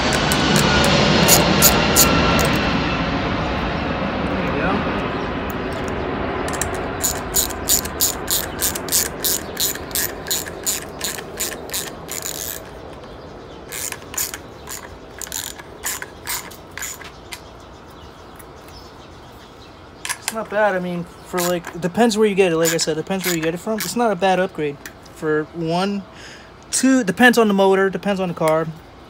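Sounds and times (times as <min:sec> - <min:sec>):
socket ratchet clicking: 0:00.0 - 0:02.7, 0:05.6 - 0:17.5, 0:21.4 - 0:21.8, 0:22.6 - 0:24.0.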